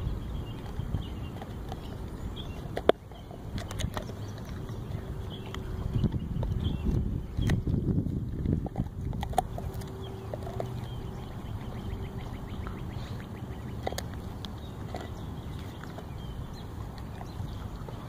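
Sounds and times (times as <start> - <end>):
dog gnawing wooden stick: 0.2 - 18.0.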